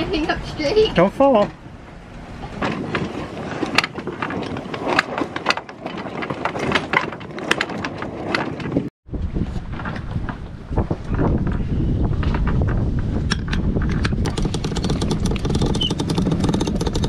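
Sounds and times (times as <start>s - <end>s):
wind and water rushing: 0.0s - 7.0s
sharp clicks and knocks: 12.2s - 17.0s.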